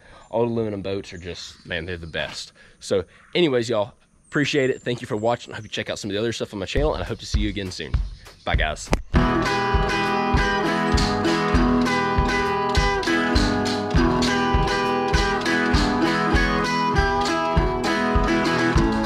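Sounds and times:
guitar-led background music: 0:09.1 - 0:19.0.

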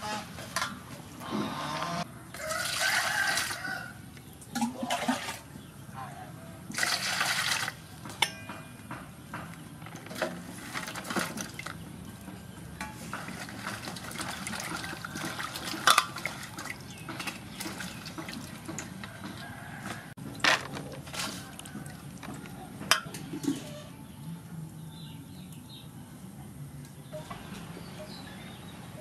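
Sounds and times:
water splashing and sloshing in basin: 0:02.3 - 0:05.6, 0:06.7 - 0:08.4, 0:09.9 - 0:23.9
water pouring into basin: 0:06.7 - 0:07.8, 0:13.3 - 0:18.8.

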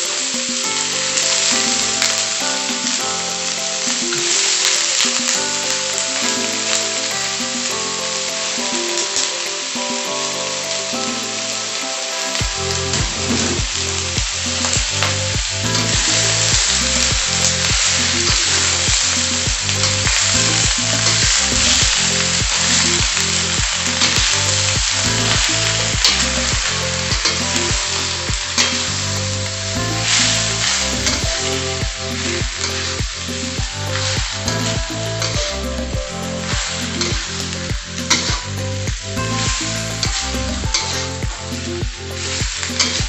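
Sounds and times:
food sizzling in a wok: 0:00.0 - 0:43.0
steady low beat: 0:12.4 - 0:43.0.

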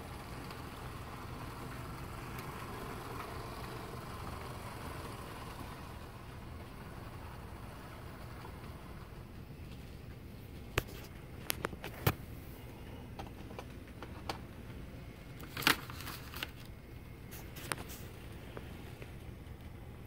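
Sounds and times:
model train low hum: 0:00.0 - 0:11.4
handling clicks and crinkles: 0:09.6 - 0:19.7.

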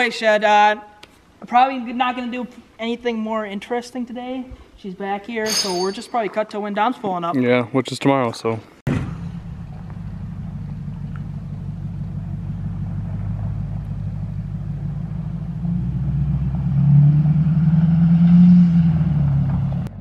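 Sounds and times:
pickup truck engine rumbling: 0:08.9 - 0:20.0.

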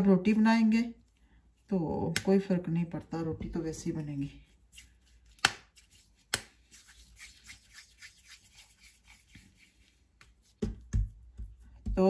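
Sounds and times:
hands rubbing dough: 0:03.9 - 0:12.0.

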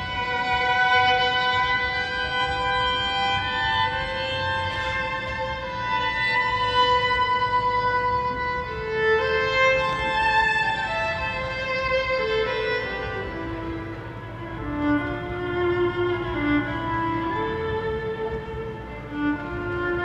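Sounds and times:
amplified violin slow melody: 0:00.0 - 0:20.0.

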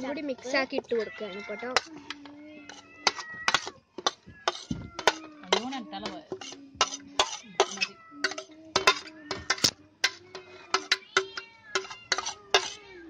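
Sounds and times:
metal spoon scraping ceramic plate: 0:02.7 - 0:12.9.

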